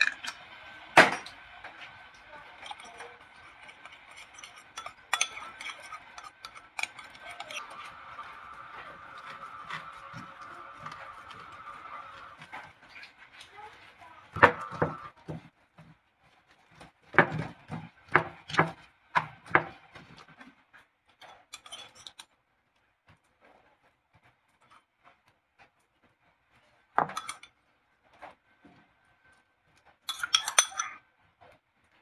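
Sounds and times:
pan and utensils knocking: 1.0 - 1.9, 2.6 - 15.5, 17.1 - 20.3, 27.0 - 27.5, 30.1 - 31.0
spoon knocking against pan: 14.3 - 15.4.

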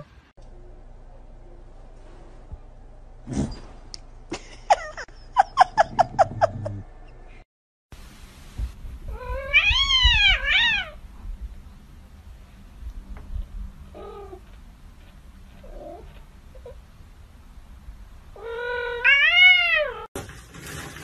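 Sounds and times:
cat meowing: 9.1 - 11.0, 18.4 - 20.1.

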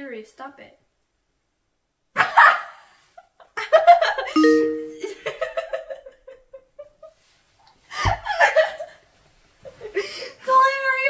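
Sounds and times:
electronic two-tone chime: 4.4 - 5.2.

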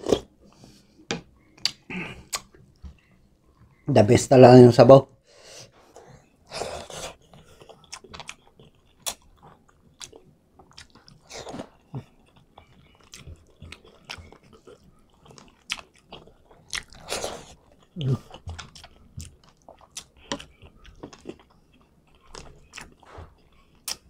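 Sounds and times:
mouth clicks: 1.6 - 2.6
person chewing rice: 5.8 - 24.0.

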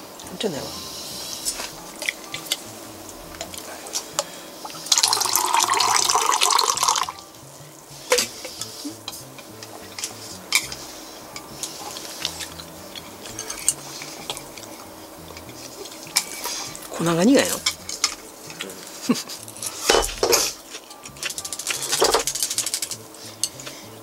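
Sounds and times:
dishes clicking and knocking: 1.9 - 2.7, 8.1 - 18.6, 19.4 - 23.7
water pouring: 4.6 - 7.2.

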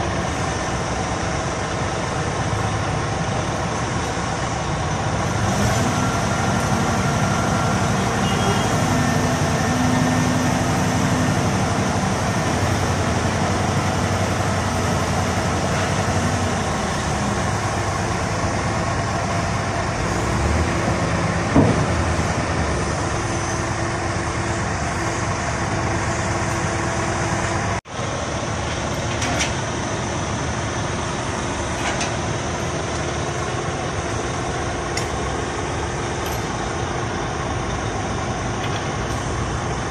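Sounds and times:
diesel engine running: 0.0 - 39.9.

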